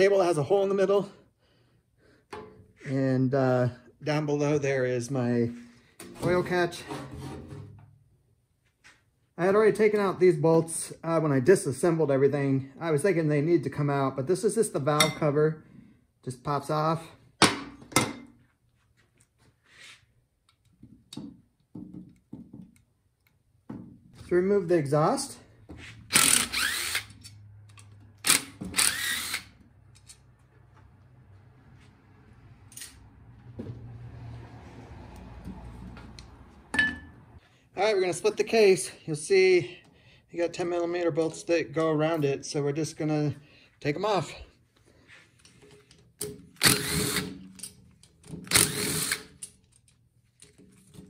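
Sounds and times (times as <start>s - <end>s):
impact driver whirring: 26.1s - 27.2s, 28.2s - 29.6s, 46.6s - 47.4s, 48.4s - 49.4s.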